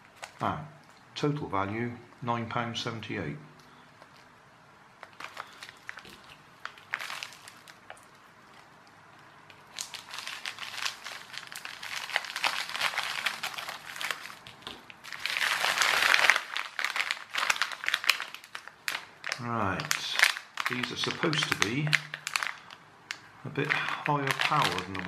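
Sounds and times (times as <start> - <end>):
small plastic bags crackling: 0.0 - 1.0, 4.9 - 25.0
mailing bag crinkling and rustling: 5.0 - 8.1, 9.6 - 22.8, 23.6 - 25.0.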